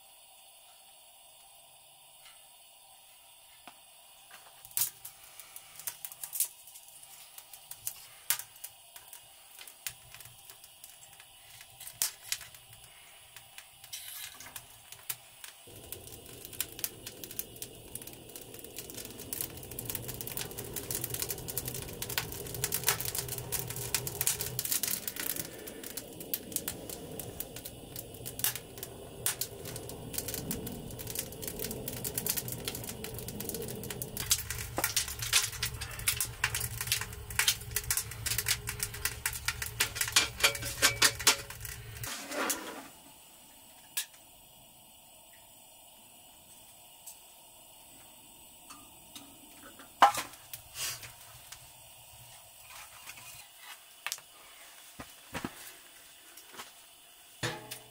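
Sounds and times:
wood fire crackling: 3.7 - 57.9
low steady rush: 15.3 - 42.2.

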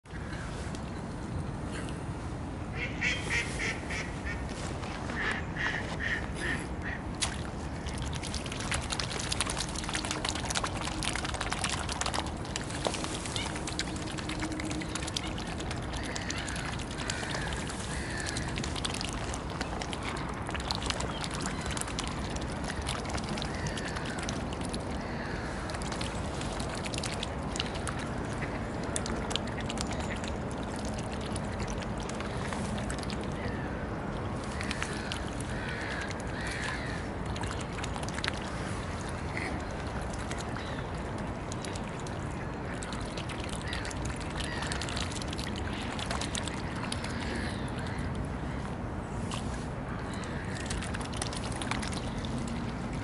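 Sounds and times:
ducks quacking: 2.8 - 4.4
bills dabbling on water: 2.8 - 53.0.

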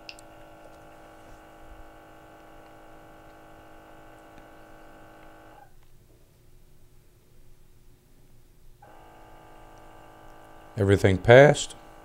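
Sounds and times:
gas detector motor hum: 0.0 - 6.0, 8.7 - 12.0.

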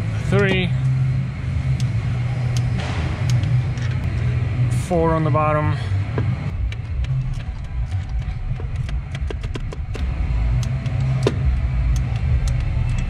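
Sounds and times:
steady low rumble: 0.0 - 13.0
ratchet clicking: 6.7 - 13.0.

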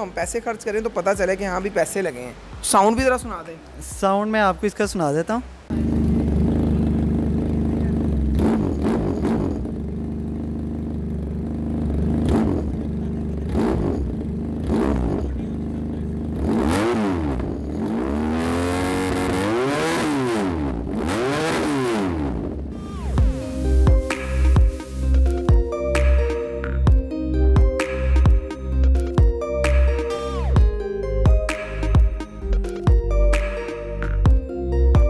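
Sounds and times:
motorcycle engine idling and revving: 5.7 - 29.4.

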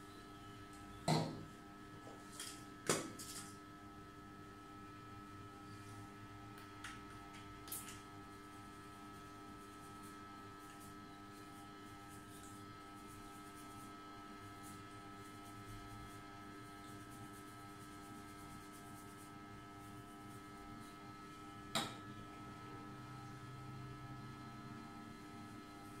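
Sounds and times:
electrical mains hum: 0.0 - 26.0.

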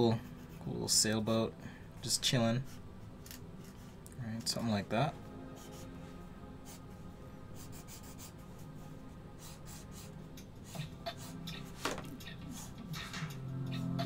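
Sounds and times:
pen scratching on paper: 5.6 - 5.8, 7.6 - 8.4, 9.4 - 12.7.

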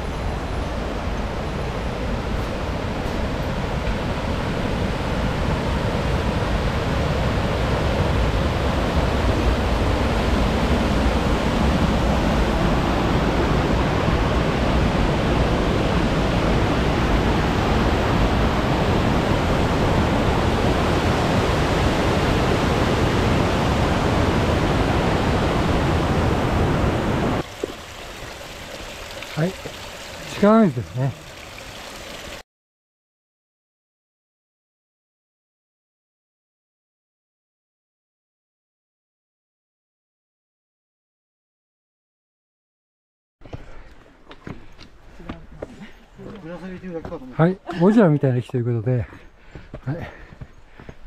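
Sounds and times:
stream rushing over boulders: 25.0 - 32.4.

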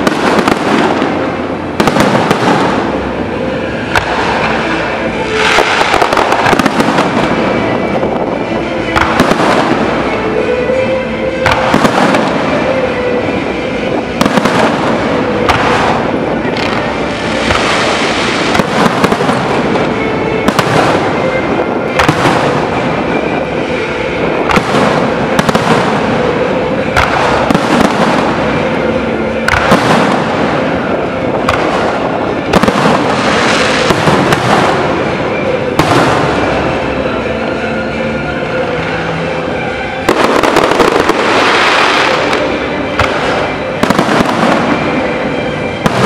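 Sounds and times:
fireworks crackling: 0.0 - 46.0.

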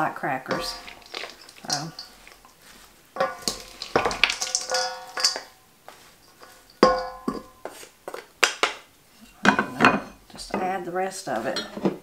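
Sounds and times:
wooden servers knocking metal bowl: 0.5 - 2.5, 3.2 - 5.6, 6.8 - 7.6
metal bowl ringing: 3.2 - 5.7, 6.7 - 7.7.

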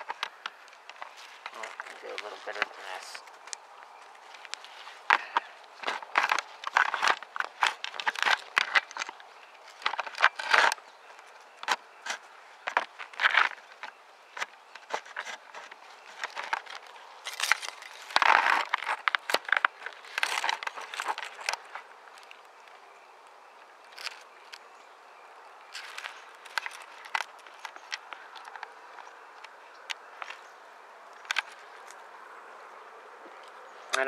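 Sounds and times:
dry twigs rustling and snapping: 0.0 - 34.0.

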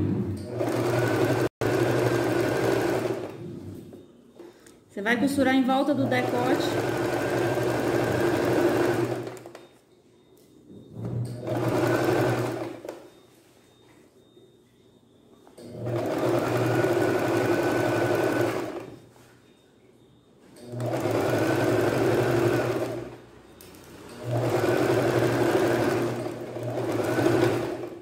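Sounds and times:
sewing machine stitching: 0.4 - 3.4, 5.8 - 9.6, 10.9 - 13.0, 15.6 - 19.0, 20.6 - 23.2, 24.0 - 28.0.

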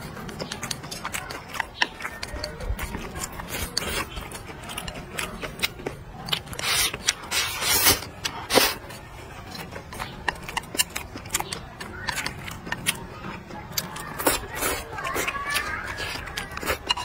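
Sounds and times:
wet chewing clicks: 0.0 - 17.0
loud slurps: 0.3 - 9.7
chopsticks tapping a bowl: 9.5 - 13.0, 15.5 - 17.0.

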